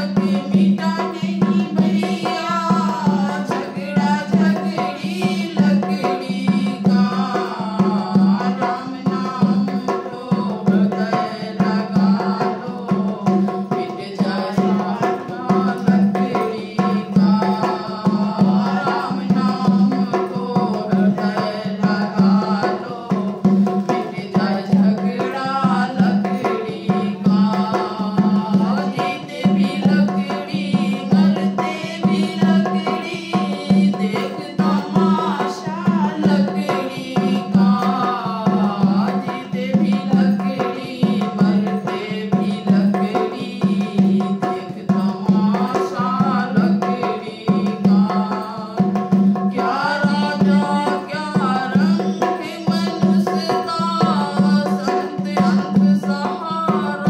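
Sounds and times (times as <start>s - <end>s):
woman singing: 0.0s - 57.0s.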